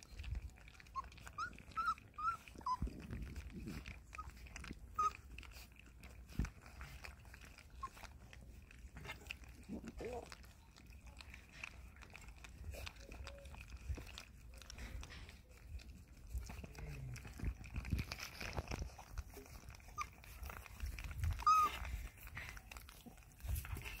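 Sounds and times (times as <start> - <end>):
puppies lapping milk: 0.0 - 24.0
puppy squeak: 0.9 - 3.0, 4.1 - 5.3, 19.3 - 22.0.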